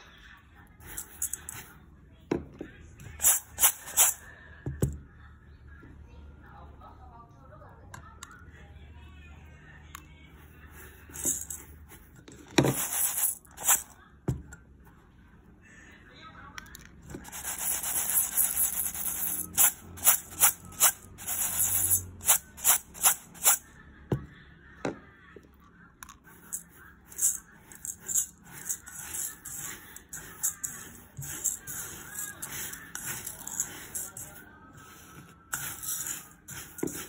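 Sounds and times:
rice rustling in a metal bowl: 0.8s - 1.8s, 3.2s - 4.3s, 11.1s - 11.9s, 12.6s - 13.9s, 17.2s - 23.6s, 26.5s - 37.0s.

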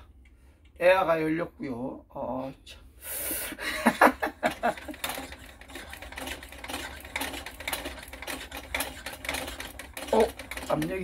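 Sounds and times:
hand pump clicking: 4.7s - 11.0s.

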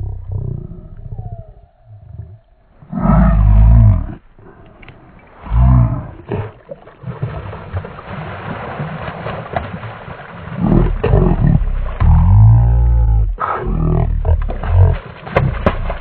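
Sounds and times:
loud low rumbling bursts: 0.0s - 4.3s, 10.6s - 16.0s
fish thrashing and splashing: 6.3s - 12.2s, 14.2s - 16.0s.

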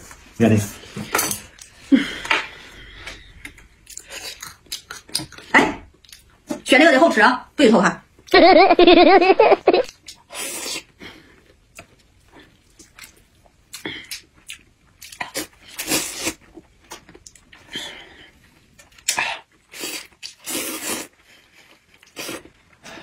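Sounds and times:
person slurping noodles: 19.7s - 21.1s.

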